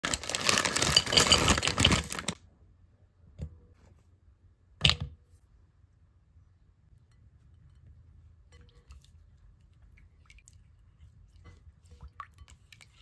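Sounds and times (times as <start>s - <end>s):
chocolate clattering into glass bowl: 0.1s - 2.4s.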